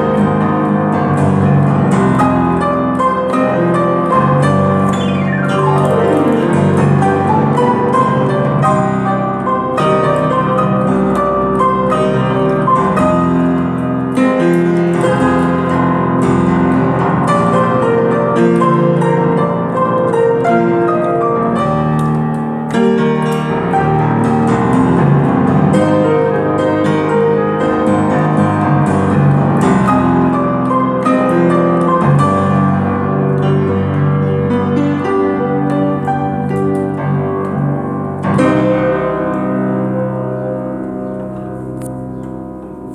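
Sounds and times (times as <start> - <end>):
upright piano playing: 0.0 - 42.9.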